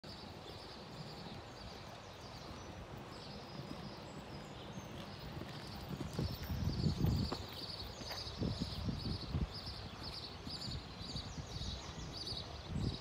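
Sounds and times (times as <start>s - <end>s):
birds chirping: 0.1s - 13.0s
horse hoofbeats on sand: 2.1s - 12.4s.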